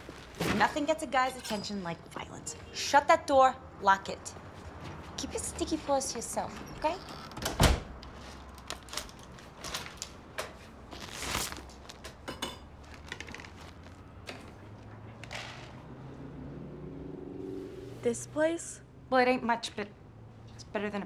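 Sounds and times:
movement in room: 4.2s - 16.3s
wooden door thudding shut: 7.4s - 7.9s.

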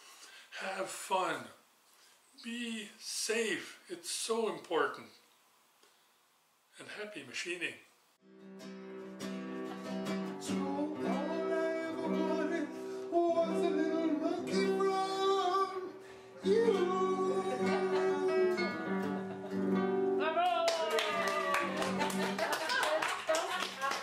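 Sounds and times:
acoustic guitar chords: 8.2s - 20.4s
person singing: 10.4s - 19.1s.

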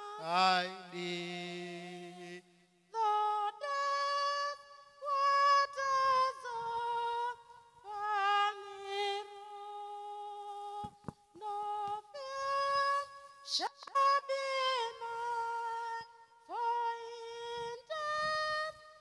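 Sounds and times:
woman singing: 0.0s - 19.0s.

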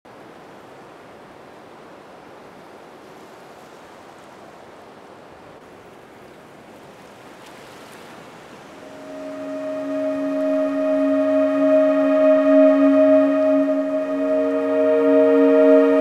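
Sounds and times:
sea surf rushing: 8.7s - 16.0s.

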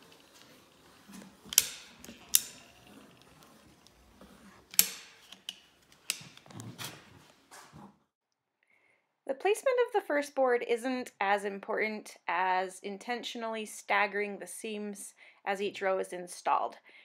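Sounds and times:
caulking gun ratcheting clicks: 1.4s - 4.1s, 4.7s - 6.5s.

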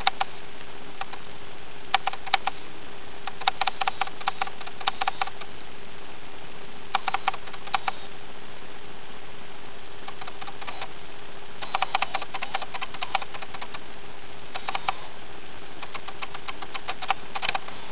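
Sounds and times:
meerkats clicking and scuffling: 0.0s - 0.3s, 1.9s - 2.6s, 3.2s - 5.5s, 6.9s - 8.1s, 10.0s - 10.9s, 11.6s - 13.8s, 14.5s - 15.1s, 15.8s - 17.9s
background hiss: 0.0s - 17.9s
faint hum: 0.0s - 17.9s.

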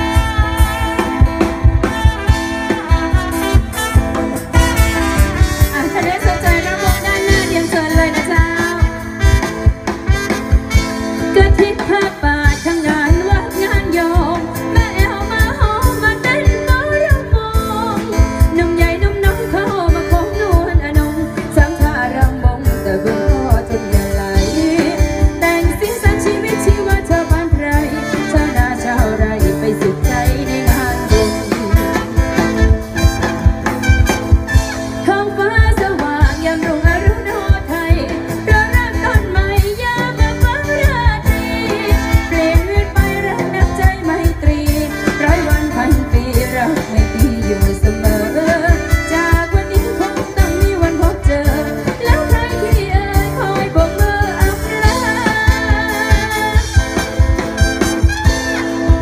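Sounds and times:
band music: 0.0s - 59.0s
steady drum beat: 0.0s - 59.0s
person singing: 11.2s - 33.1s, 35.0s - 57.4s.

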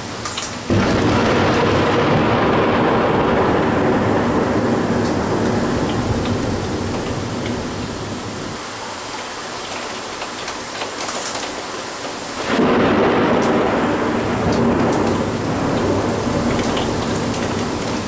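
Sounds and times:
heavy rain: 0.0s - 18.0s
thunder rumbling: 0.7s - 8.6s, 12.4s - 18.0s
raindrops ticking on window glass: 5.0s - 7.7s, 9.6s - 18.0s.

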